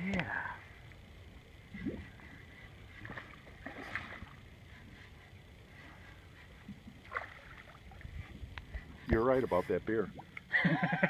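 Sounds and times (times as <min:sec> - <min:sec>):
water lapping against boat hull: 0:01.0 - 0:11.0
fish thrashing and splashing: 0:03.0 - 0:04.5, 0:06.8 - 0:08.0.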